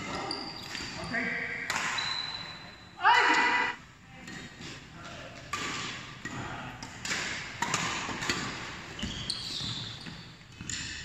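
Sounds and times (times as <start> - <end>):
sneakers squeaking on court: 0.0 - 1.3, 8.9 - 10.9
racket hitting shuttlecock: 1.7 - 2.0, 5.5 - 9.1.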